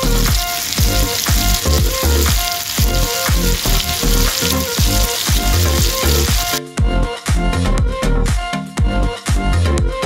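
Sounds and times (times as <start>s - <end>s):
apple sizzling in butter: 0.0s - 6.6s
background music with steady beat: 0.0s - 10.0s.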